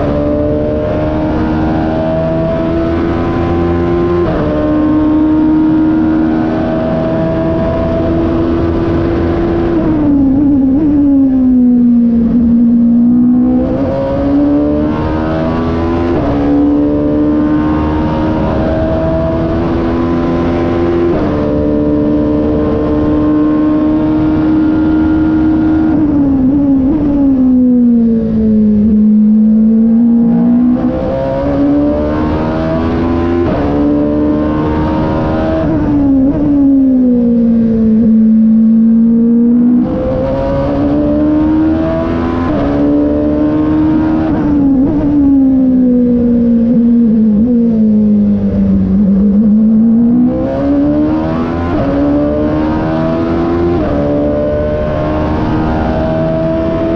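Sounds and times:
racing engine accelerating: 0.0 - 56.9.

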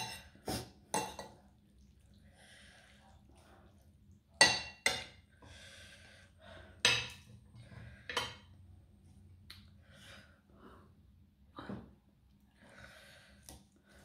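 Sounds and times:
breathing: 2.3 - 3.8, 5.4 - 6.9, 7.5 - 8.5, 9.8 - 11.0, 12.5 - 14.0.

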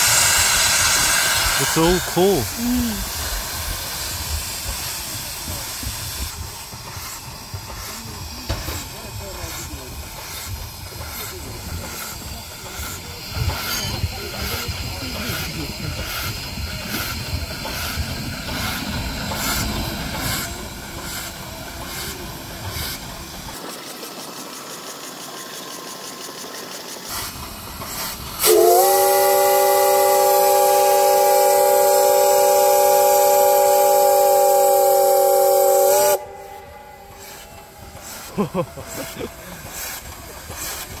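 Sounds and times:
steam locomotive hissing: 0.0 - 41.0
locomotive whistle chord: 28.4 - 37.8.

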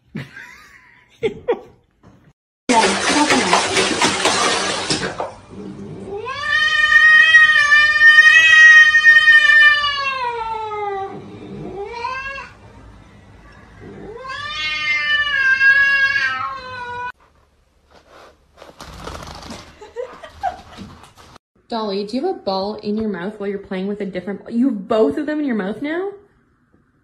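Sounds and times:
cat yowling: 6.1 - 12.6, 13.9 - 17.2.

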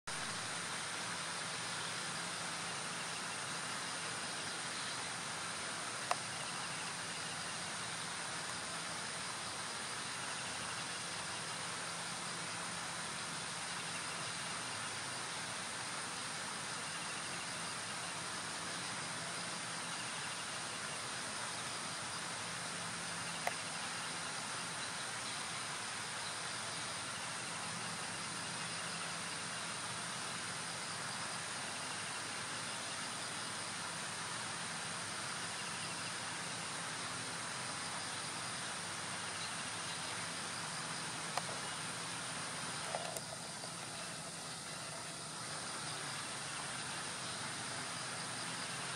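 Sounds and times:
stream hiss: 0.1 - 48.9.

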